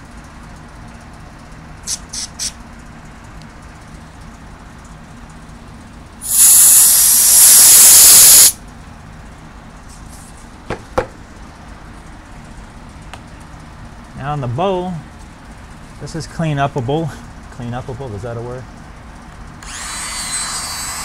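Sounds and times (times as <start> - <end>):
aerosol spray hiss: 6.2 - 8.6
short aerosol hisses: 6.2 - 8.6.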